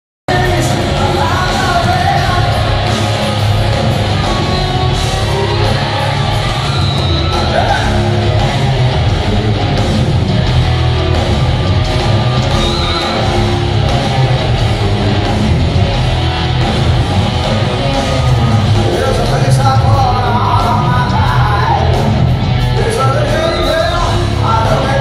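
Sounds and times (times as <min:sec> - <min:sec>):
person singing lead vocal: 0:00.3 - 0:03.1, 0:18.8 - 0:22.2, 0:22.8 - 0:25.0
heavy rock band playing: 0:00.3 - 0:25.0.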